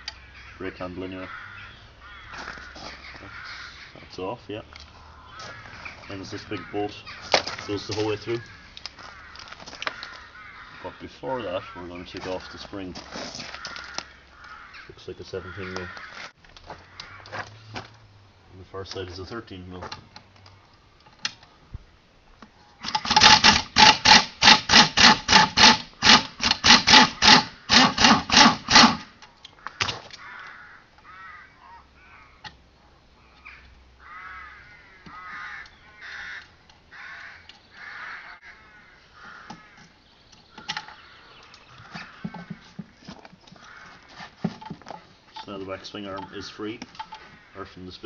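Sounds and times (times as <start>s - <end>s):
power driver undoing a bolt: 22.8s - 29.1s.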